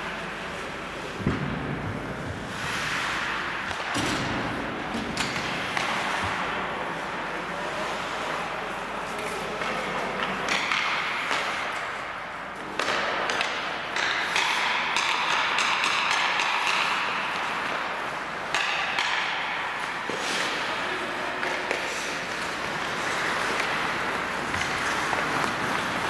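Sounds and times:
skate blades scraping on ice: 0:02.3 - 0:03.8, 0:14.1 - 0:26.0
hockey sticks and puck clicking: 0:05.0 - 0:06.6, 0:09.1 - 0:26.0.

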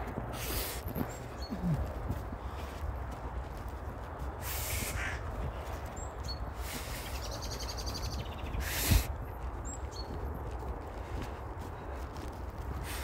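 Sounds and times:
wind rumble on microphone: 0:00.0 - 0:13.0
bird calls: 0:00.4 - 0:02.7, 0:04.4 - 0:10.2.

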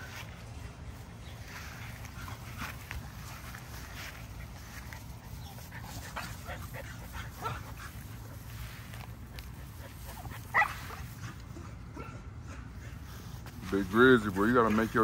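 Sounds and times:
puppies play-fighting: 0:00.0 - 0:15.0
puppy barking: 0:10.5 - 0:11.0.

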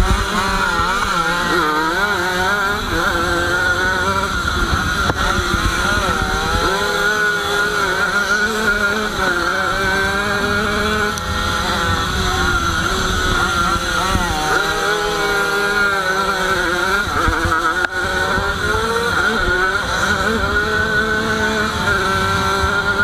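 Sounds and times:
small motorcycle engine revving: 0:00.0 - 0:23.0.

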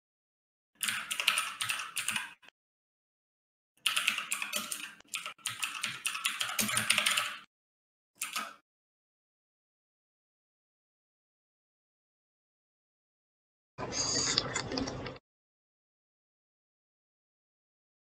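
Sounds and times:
computer keyboard typing: 0:00.8 - 0:02.5, 0:03.8 - 0:07.5, 0:08.2 - 0:08.6.

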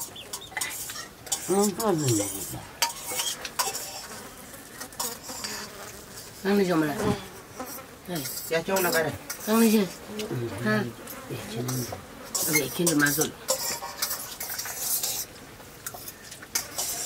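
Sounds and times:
spoons clinking on metal plates: 0:00.0 - 0:04.1, 0:08.2 - 0:09.5, 0:11.7 - 0:15.3, 0:15.9 - 0:17.0.

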